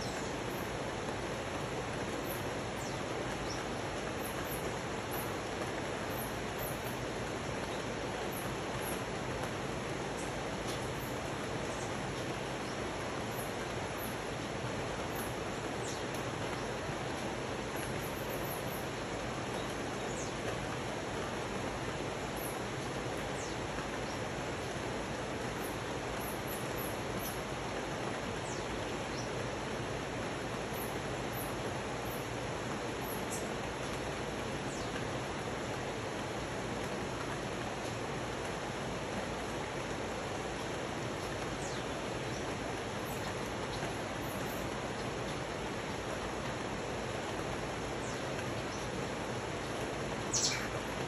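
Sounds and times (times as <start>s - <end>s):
river rushing over rocks: 0.0s - 51.0s
steady rain on forest: 0.0s - 51.0s
faint high chirps: 50.3s - 50.8s.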